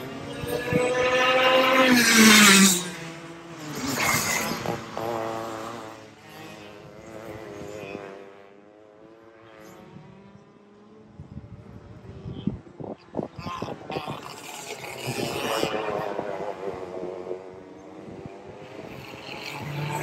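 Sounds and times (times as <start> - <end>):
racing kart engines buzzing past: 0.0 - 20.0.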